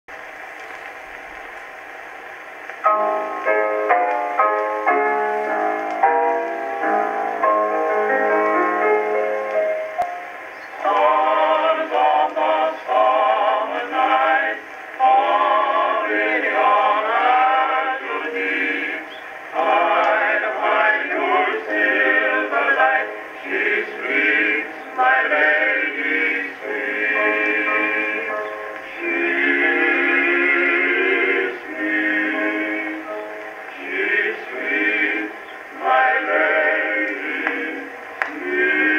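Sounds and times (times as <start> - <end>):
male vocal quartet singing: 10.8 - 38.9.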